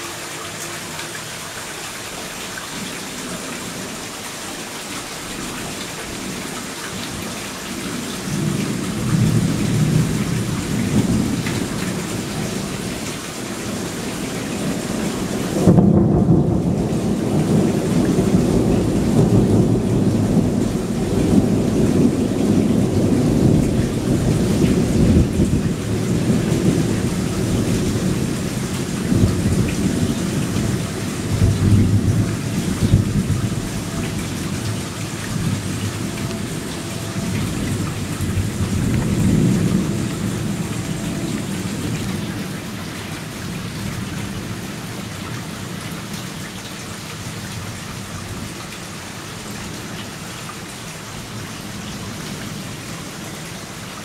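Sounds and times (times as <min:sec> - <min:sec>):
heavy rain falling: 0:00.0 - 0:54.0
thunder rumbling: 0:13.8 - 0:45.0
thunder clap: 0:15.6 - 0:42.5.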